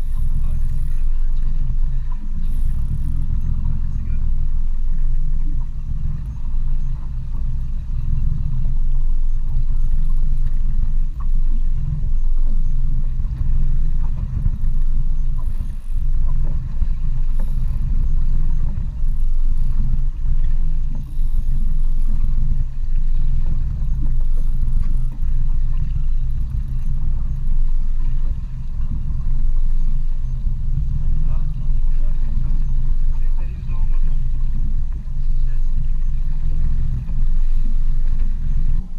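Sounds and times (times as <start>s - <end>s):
outboard motor idling: 0.0s - 38.9s.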